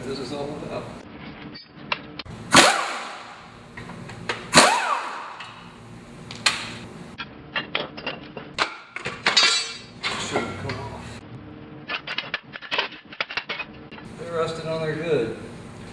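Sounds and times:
impact wrench bursts: 2.3 - 5.8
metal clicks and clanks: 11.9 - 14.1.

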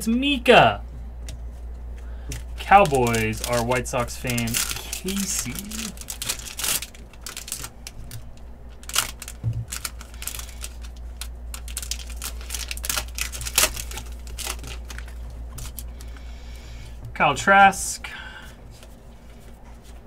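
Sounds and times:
steady low hum: 0.0 - 20.0
foil wrappers crinkling and tearing: 2.3 - 16.2.

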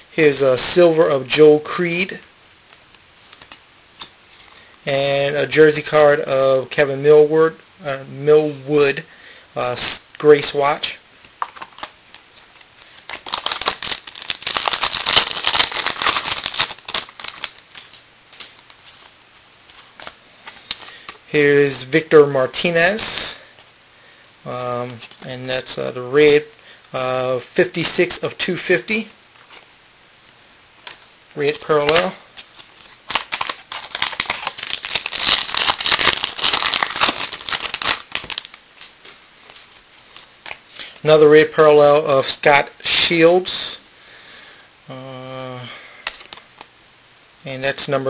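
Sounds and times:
wrapper crinkling and tearing: 11.4 - 21.2, 30.9 - 40.6, 46.0 - 46.7.

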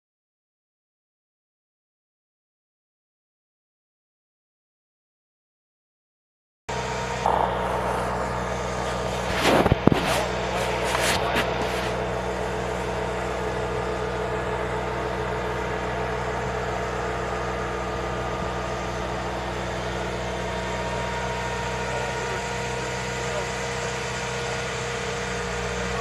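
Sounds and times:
steady higher tones: 6.7 - 23.6
vehicle engine humming: 6.7 - 26.0.

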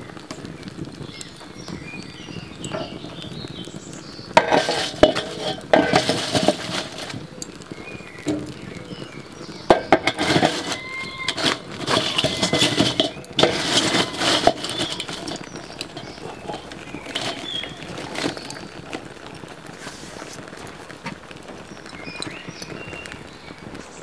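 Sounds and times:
bricks knocking against metal: 4.4 - 7.2, 8.2 - 8.8, 9.7 - 18.6.

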